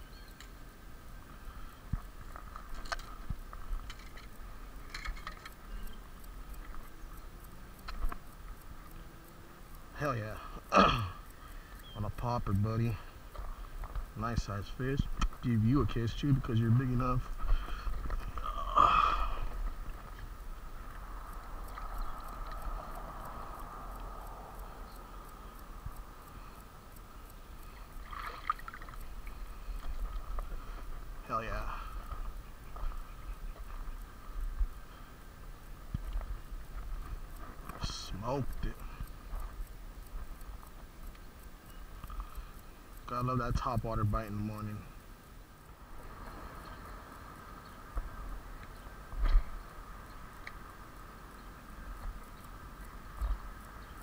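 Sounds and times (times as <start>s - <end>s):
wind rumble on microphone: 19.2s - 26.4s
fish splashing: 27.7s - 30.3s
water lapping and sloshing: 27.8s - 29.4s.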